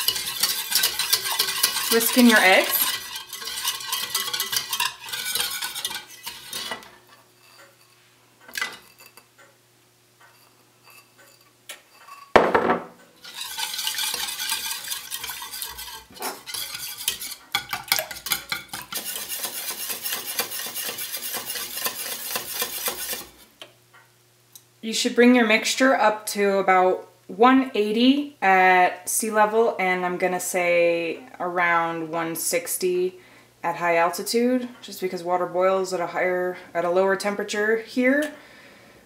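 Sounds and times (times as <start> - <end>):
whisk clinking against pan: 0.0 - 7.6, 13.2 - 23.4
knock: 12.4 - 12.9.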